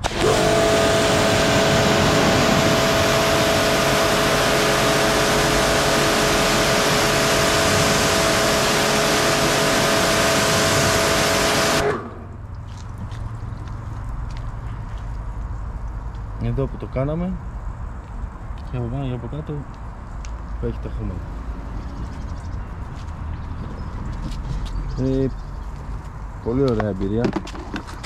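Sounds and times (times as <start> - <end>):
pressure washer water jet hissing: 0.0 - 12.4
motor and pump whine: 0.0 - 12.5.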